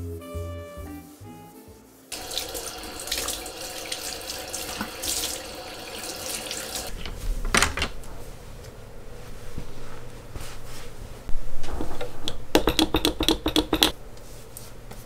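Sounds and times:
tap water running into sink: 2.2 - 6.9.

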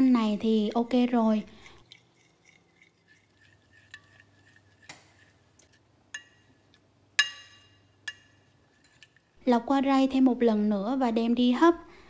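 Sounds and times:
utensil clinking against bowl: 1.6 - 9.4.

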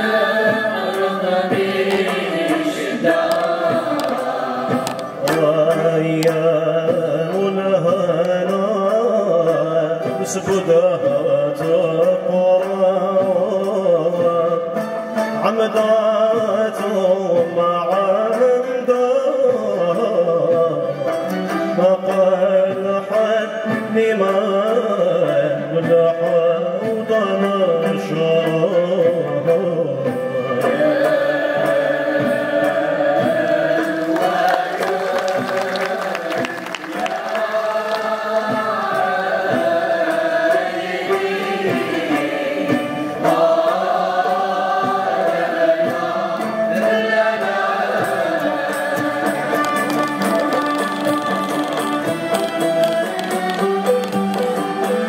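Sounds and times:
string ensemble playing: 0.0 - 55.0
man singing: 4.8 - 40.3.

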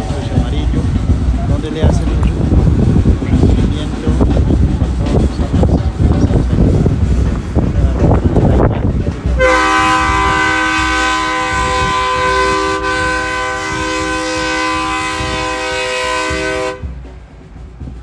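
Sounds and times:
low rumble: 0.0 - 18.0
multi-tone air horn chord: 9.4 - 17.0.

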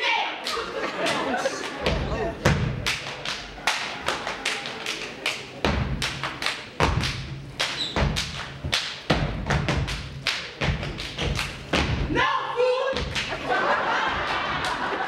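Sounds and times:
feet stomping on stage floor: 1.8 - 3.0, 5.6 - 12.2, 12.9 - 13.5.

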